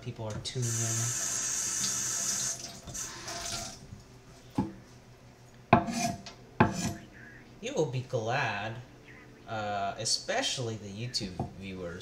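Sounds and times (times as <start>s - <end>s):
tap water running: 0.6s - 4.0s
kitchenware clinking: 5.8s - 7.0s.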